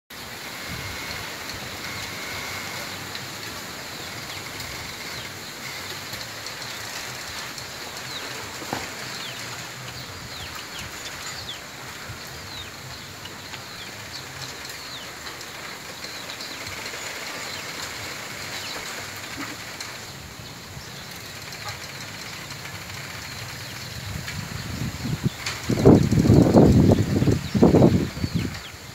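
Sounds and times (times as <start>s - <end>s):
bamboo leaves rustling in wind: 0.1s - 28.9s.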